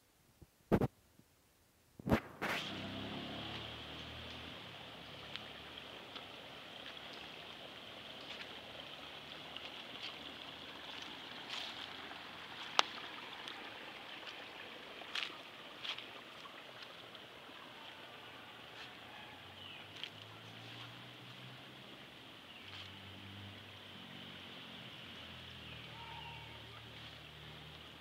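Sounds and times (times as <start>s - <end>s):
outdoor background hiss: 0.0s - 28.0s.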